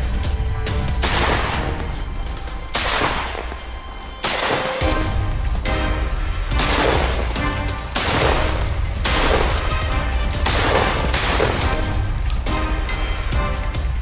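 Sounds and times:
background music: 0:00.0 - 0:14.0
shotgun shots: 0:01.0 - 0:05.9, 0:06.5 - 0:12.4.

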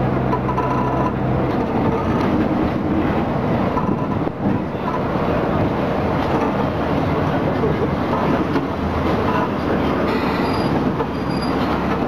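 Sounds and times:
train wheels and engine rumbling: 0:00.0 - 0:12.0
wind buffeting microphone: 0:01.3 - 0:10.0.

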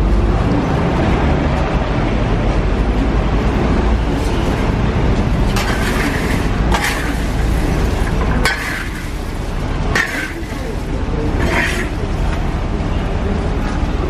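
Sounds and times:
metal shovel scraping through sand: 0:05.5 - 0:12.0.

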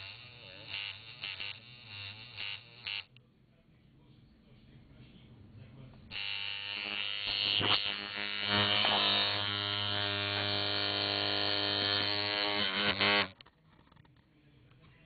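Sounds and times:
tattoo machine electric buzz: 0:00.0 - 0:03.1, 0:06.1 - 0:13.5.

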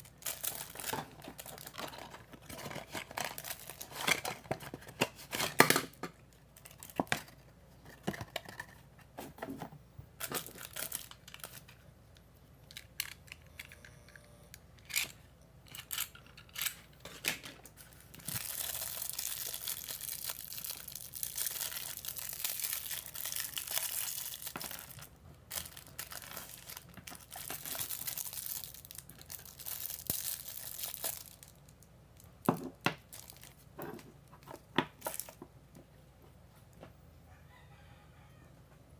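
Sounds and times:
plastic packaging crinkling: 0:00.0 - 0:05.7, 0:10.2 - 0:11.8, 0:15.7 - 0:35.4.

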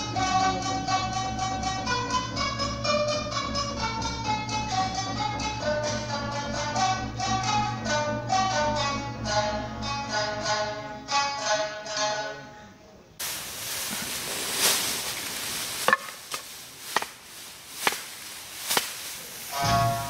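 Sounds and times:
plucked-string music: 0:00.0 - 0:12.8, 0:19.2 - 0:20.0
steady hiss: 0:13.2 - 0:20.0
sharp knocks: 0:15.8 - 0:20.0.

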